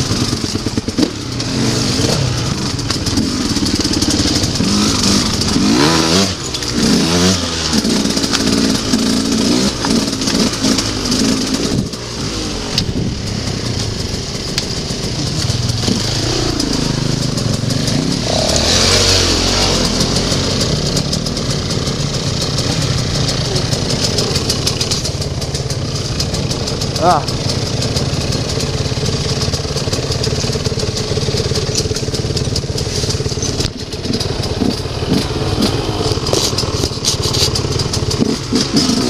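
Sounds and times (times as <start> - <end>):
motorcycle engine revving: 0.0 - 39.0.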